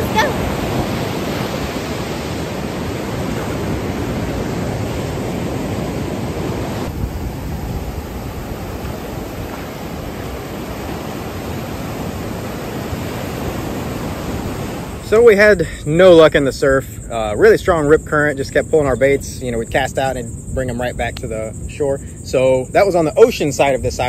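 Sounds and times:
wind on microphone: 0.0 - 15.0
ocean surf breaking: 0.0 - 16.2.

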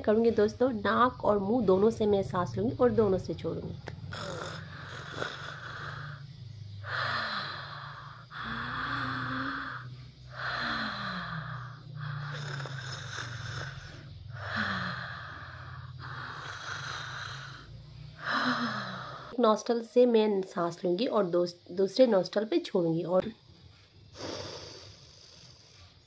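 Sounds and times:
woman breathing hard: 4.1 - 19.4.

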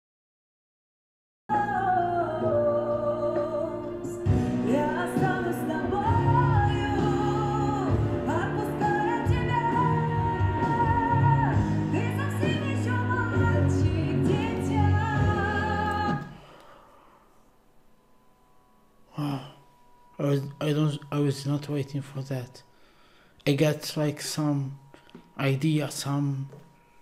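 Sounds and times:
woman singing with vibrato: 1.5 - 16.6.

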